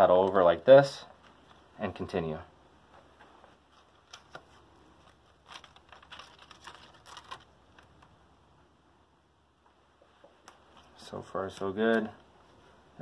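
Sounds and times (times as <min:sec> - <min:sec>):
tape rustling and clicking: 0:02.9 - 0:08.2, 0:09.6 - 0:12.6.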